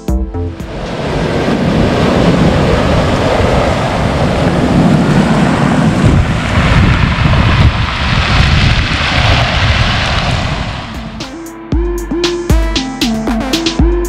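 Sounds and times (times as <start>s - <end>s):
ocean surf breaking on stone beach: 0.6s - 11.2s.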